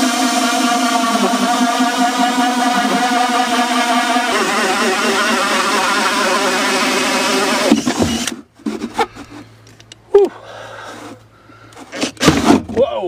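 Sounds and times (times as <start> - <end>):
cordless drill cutting fibreglass: 0.0 - 8.4.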